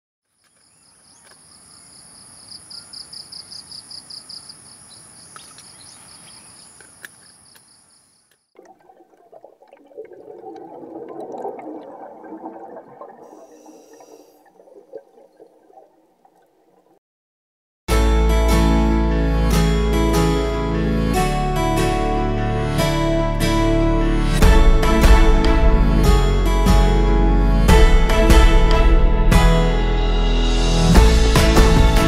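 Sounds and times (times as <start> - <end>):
muffled underwater churning: 8.6 - 17.0.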